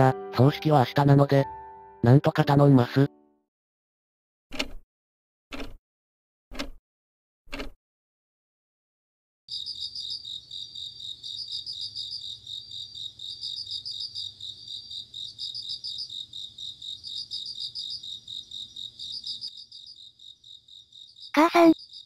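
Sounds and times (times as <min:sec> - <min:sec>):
crickets chirping: 0:09.5 - 0:22.0.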